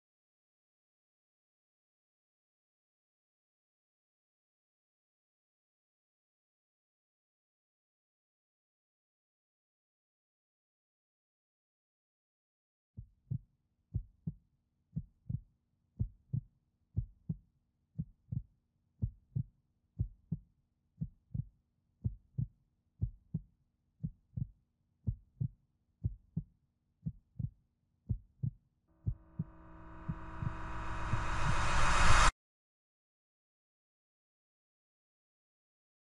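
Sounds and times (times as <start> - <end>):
heartbeat thumps: 28.1 - 32.3
swell of noise: 29.1 - 32.3.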